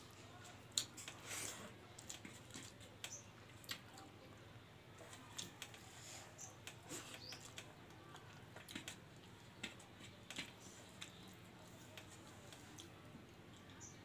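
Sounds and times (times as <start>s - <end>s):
person eating by hand: 0.1s - 4.4s, 5.0s - 14.0s
chewing clicks: 6.6s - 12.9s.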